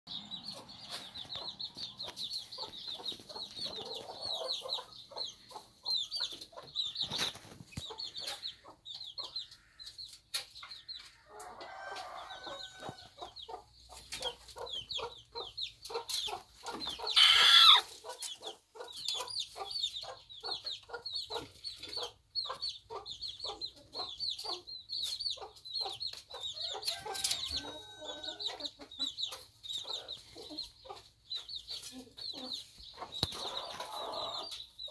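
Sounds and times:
hens clucking: 0:00.1 - 0:34.9
loud hen call: 0:17.2 - 0:17.9.

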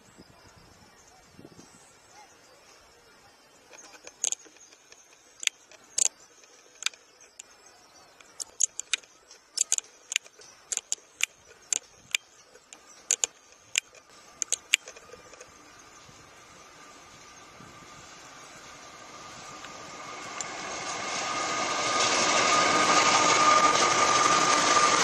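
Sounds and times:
diesel locomotive running: 0:00.5 - 0:25.0
sharp irregular clicks: 0:03.7 - 0:07.5, 0:08.2 - 0:15.5.

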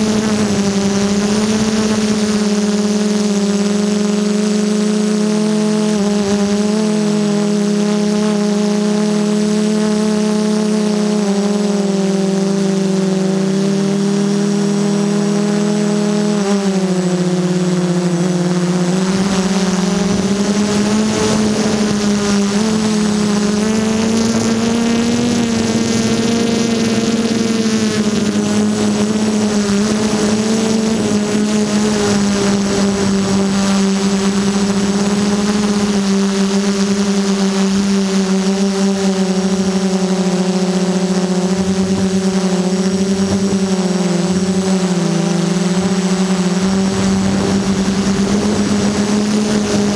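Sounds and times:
drone motors whining: 0:00.0 - 0:49.9
rushing wind noise: 0:18.6 - 0:36.1, 0:41.6 - 0:49.9.

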